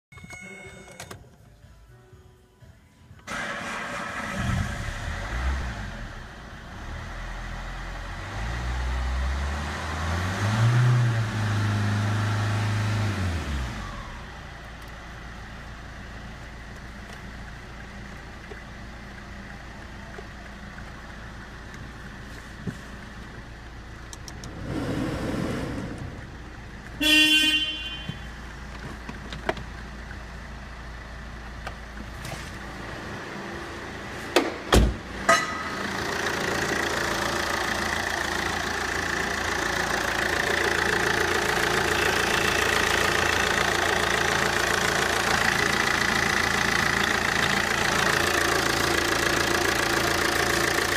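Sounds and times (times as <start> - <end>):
diesel engine revving and idling: 3.3 - 50.9
car horn toot: 27.0 - 28.5.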